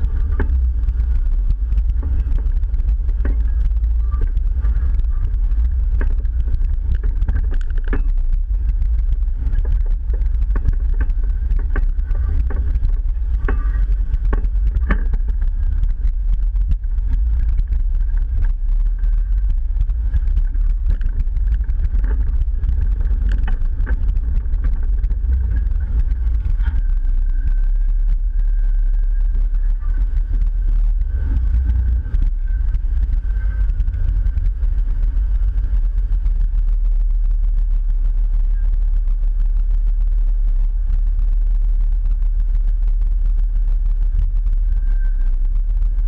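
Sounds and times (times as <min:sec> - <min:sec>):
engine rumbling low: 0:00.0 - 0:46.0
knocks and clunks over rocks: 0:00.1 - 0:28.2.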